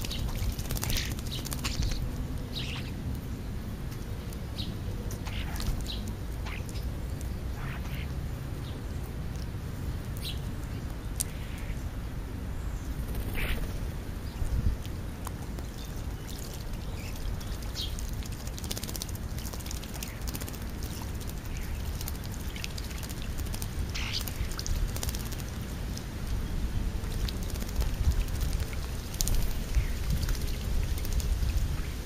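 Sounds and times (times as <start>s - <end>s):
wind rumble on microphone: 12.8s - 32.0s.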